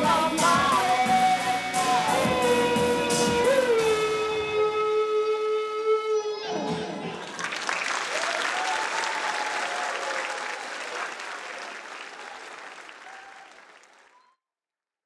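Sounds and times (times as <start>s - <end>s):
audience applauding: 7.0s - 14.2s.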